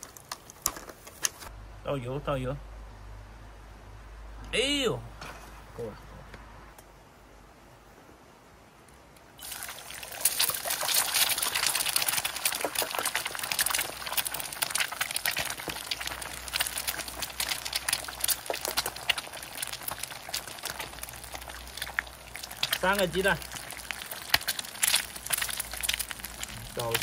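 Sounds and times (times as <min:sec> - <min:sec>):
oil sizzling and spattering in pan: 0:09.4 - 0:27.0.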